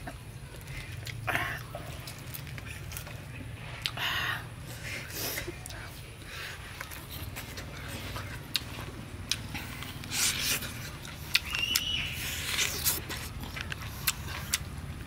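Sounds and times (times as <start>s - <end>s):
wet chewing: 0.1s - 4.0s, 5.0s - 15.0s
lip smacks: 9.3s - 14.7s.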